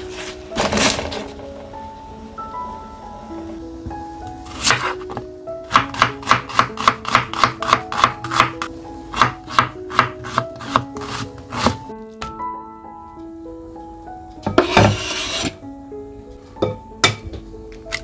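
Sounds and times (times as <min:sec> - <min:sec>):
knife chopping on wooden board: 0:04.6 - 0:08.6, 0:09.2 - 0:11.8.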